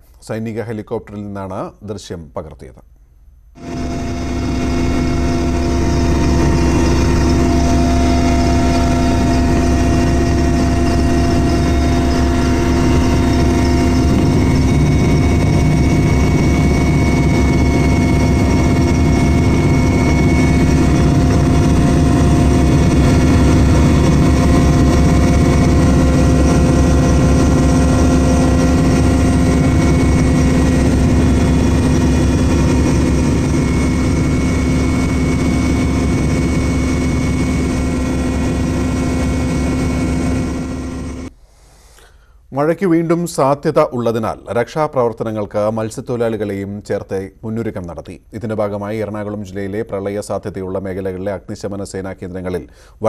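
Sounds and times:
helicopter engine and rotor drone: 0:03.6 - 0:41.3
whining tones: 0:03.6 - 0:41.3.

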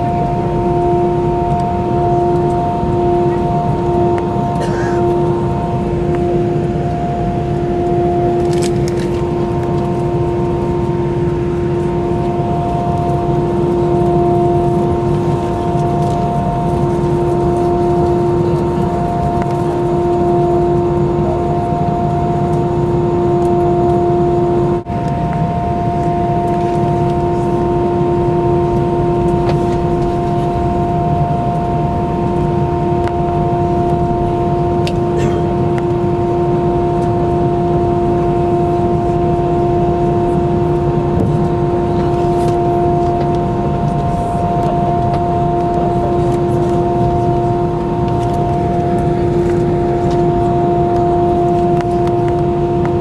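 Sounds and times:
jet engine low rumble: 0:00.0 - 0:53.0
multi-tone engine whine: 0:00.0 - 0:53.0.

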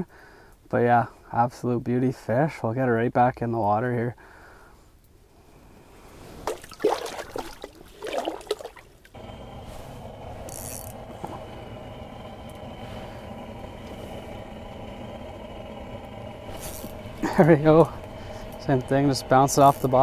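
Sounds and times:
fish splashing in water: 0:06.4 - 0:09.1
steady mechanical hum: 0:09.1 - 0:20.0.

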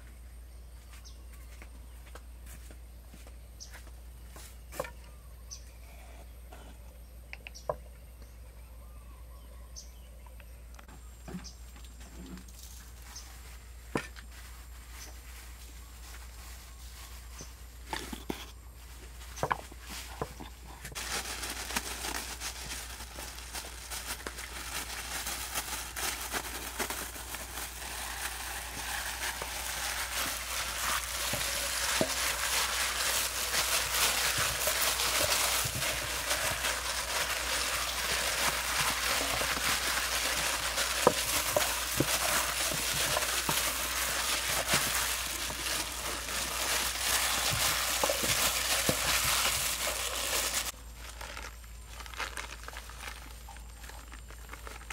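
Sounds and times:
plastic gloves crinkling: 0:11.9 - 0:54.9.

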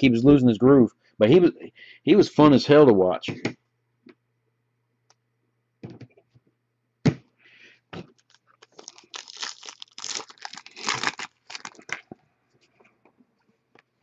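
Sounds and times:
foil wrapper tearing and crinkling: 0:08.2 - 0:12.1.

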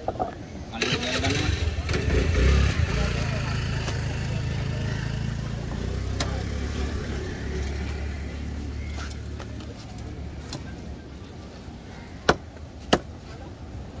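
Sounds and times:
vehicle engine humming: 0:00.8 - 0:11.4
cleaver chopping fish on wood: 0:12.2 - 0:13.1.

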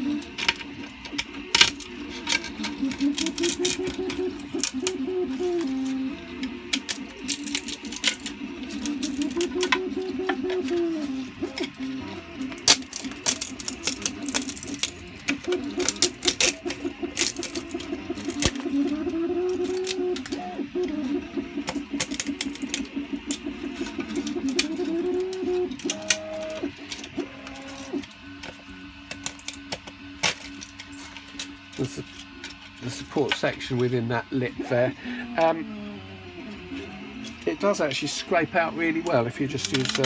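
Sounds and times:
humming tone: 0:00.0 - 0:40.0
screwdriver scraping plastic: 0:39.5 - 0:40.0.

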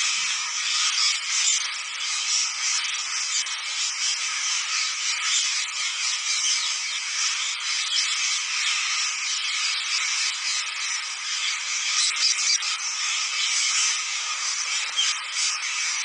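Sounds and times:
flock of parakeets calling: 0:00.0 - 0:16.0.

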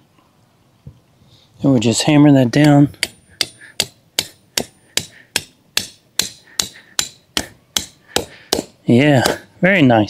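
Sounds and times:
hammer striking steel clip: 0:02.6 - 0:09.4.

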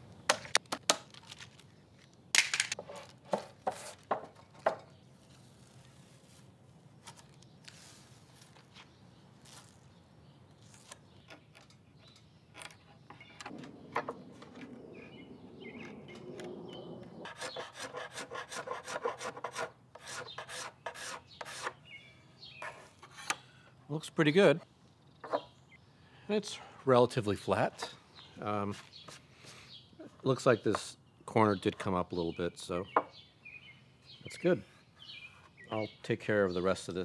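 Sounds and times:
chisel scraping wood: 0:02.8 - 0:04.2, 0:17.2 - 0:21.8, 0:22.6 - 0:23.4.

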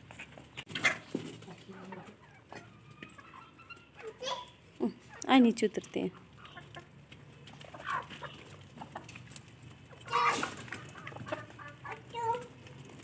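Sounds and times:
chickens clucking: 0:00.0 - 0:13.0
chicken call: 0:10.0 - 0:12.0.

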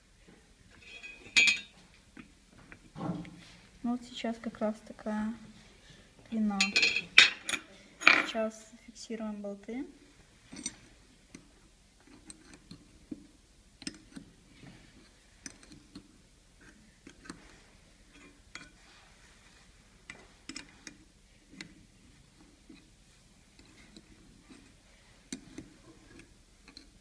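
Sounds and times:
spanner clicking on metal: 0:25.3 - 0:27.0.

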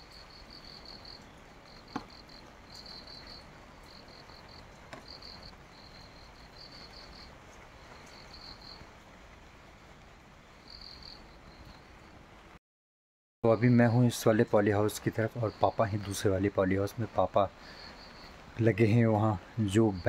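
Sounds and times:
insect chirping: 0:00.0 - 0:08.9, 0:10.4 - 0:12.1, 0:17.0 - 0:18.5.

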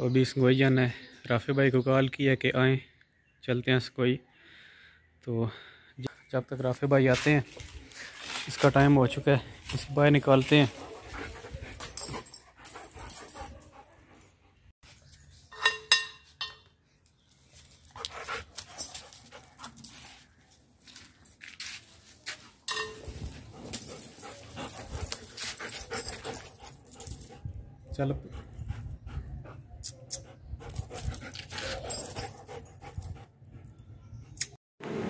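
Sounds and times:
scuffling and handling noises: 0:06.7 - 0:14.3
dog panting: 0:10.4 - 0:14.6, 0:23.3 - 0:33.7.

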